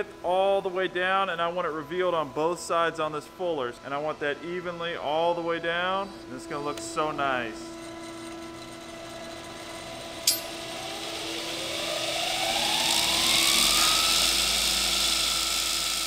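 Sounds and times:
belt grinder grinding steel: 0:05.7 - 0:16.0.

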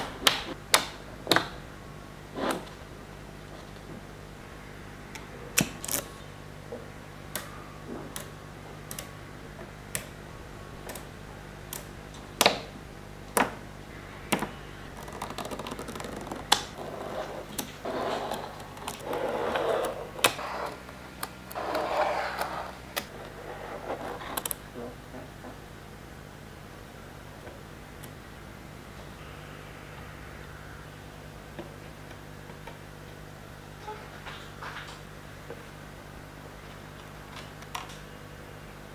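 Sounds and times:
magnetic balls clicking together: 0:14.3 - 0:16.8.

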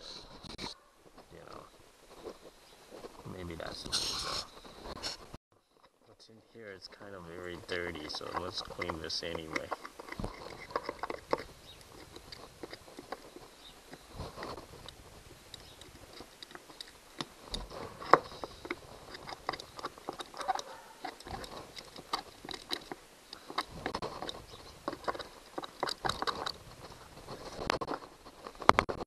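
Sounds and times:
screwdriver scraping and tapping metal: 0:06.9 - 0:29.0.

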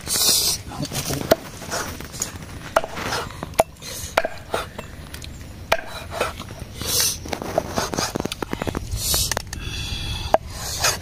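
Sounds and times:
cleaver chopping on wooden board: 0:04.2 - 0:04.4, 0:05.7 - 0:06.0.

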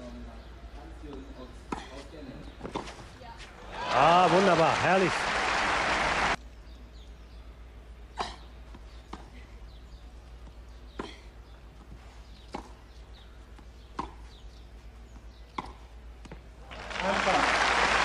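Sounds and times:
tennis ball struck with rackets: 0:12.3 - 0:12.9, 0:13.6 - 0:14.5, 0:15.5 - 0:16.4.

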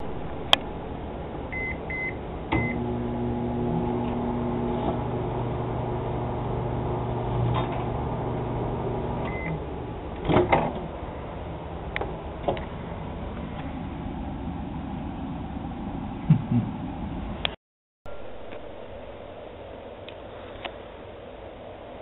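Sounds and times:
microwave oven humming: 0:00.0 - 0:10.4
microwave keypad beeps: 0:01.6 - 0:02.8, 0:09.3 - 0:09.6.

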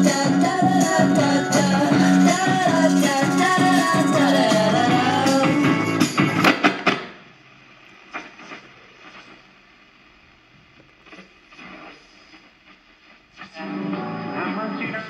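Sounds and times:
radio broadcast snatches: 0:00.0 - 0:15.0
radio hiss: 0:00.0 - 0:15.0.

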